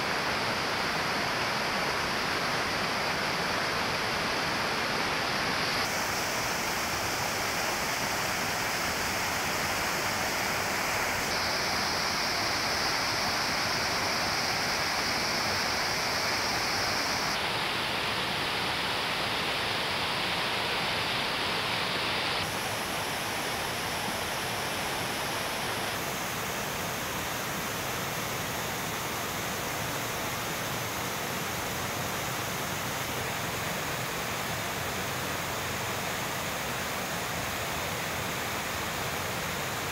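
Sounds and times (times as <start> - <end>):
water rushing over boulders: 0.0 - 39.9.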